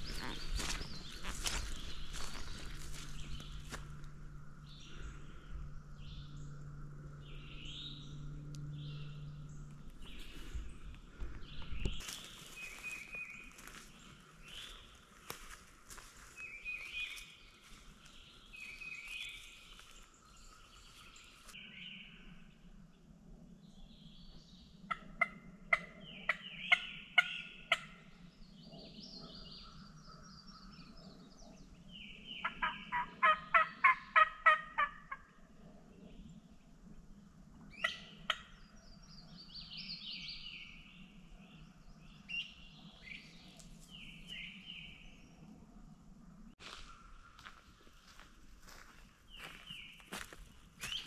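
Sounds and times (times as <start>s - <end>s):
steady low hum: 0.0s - 26.3s
songbirds chirping: 0.0s - 51.0s
turkey call yelps: 32.5s - 35.2s.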